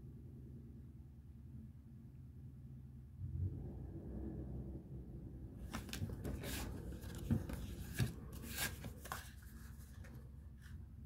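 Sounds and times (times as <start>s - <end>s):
paper sachets rustling: 5.7s - 10.2s.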